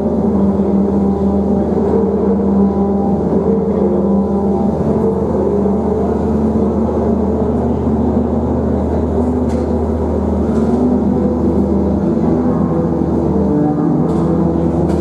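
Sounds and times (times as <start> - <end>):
drone music with held tones: 0.0 - 15.0.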